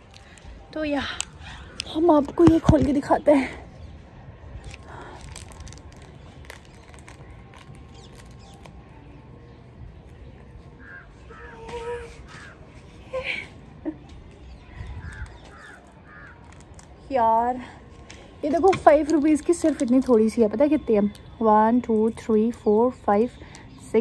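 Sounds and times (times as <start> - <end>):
crows cawing: 10.8 - 11.7, 15.0 - 16.5.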